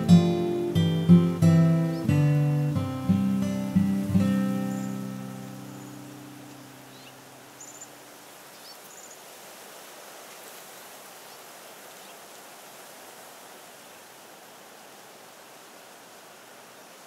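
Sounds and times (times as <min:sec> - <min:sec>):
lakeside ambience hiss: 0:00.0 - 0:17.0
faint high chirps: 0:04.5 - 0:07.9.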